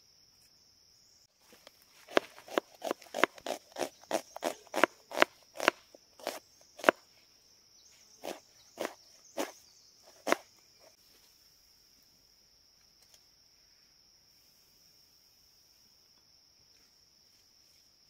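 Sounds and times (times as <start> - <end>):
insects shrilling: 1.2 - 11.0
knife chopping on board: 2.1 - 7.0, 8.2 - 9.5, 10.2 - 10.4.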